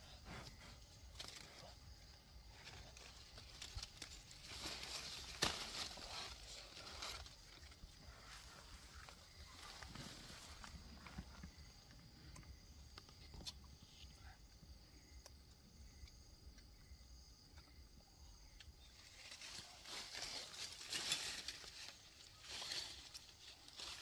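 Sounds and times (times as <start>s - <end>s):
leafy branches rustling: 1.0s - 11.2s, 18.9s - 24.0s.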